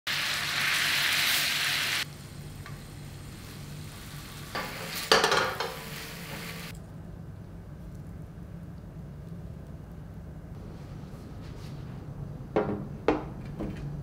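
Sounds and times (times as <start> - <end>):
sauce sizzling in a frying pan: 0.1 - 6.7.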